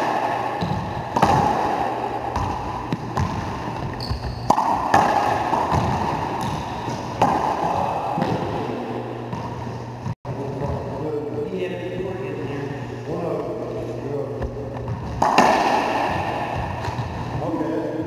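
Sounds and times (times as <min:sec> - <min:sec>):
ball cracking off racquets and walls: 0:00.0 - 0:09.6, 0:14.4 - 0:17.4
low hum: 0:05.4 - 0:18.0.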